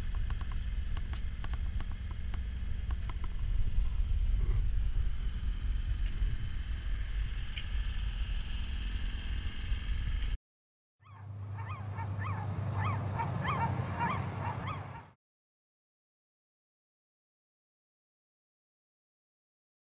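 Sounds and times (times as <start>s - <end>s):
low steady hum: 0.0s - 10.4s, 11.0s - 15.1s
steady low rumble: 0.0s - 10.4s
geese honking: 11.0s - 15.1s.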